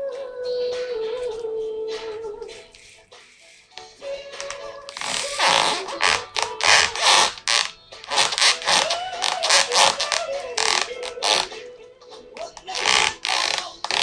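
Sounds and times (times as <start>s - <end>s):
leather boots creaking: 4.4s - 11.6s, 12.4s - 14.0s.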